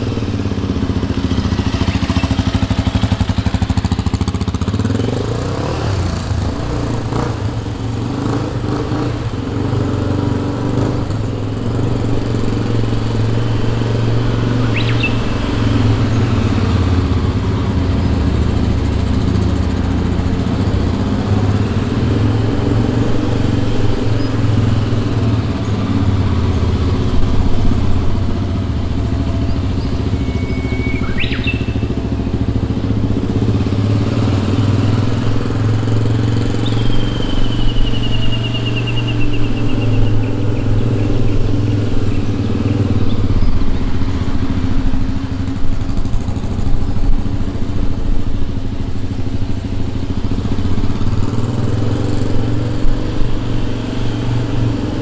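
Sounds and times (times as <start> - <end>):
dirt bike engine running: 0.0 - 55.0
bird chirping and trilling: 14.4 - 15.7, 29.4 - 32.0, 36.5 - 43.8.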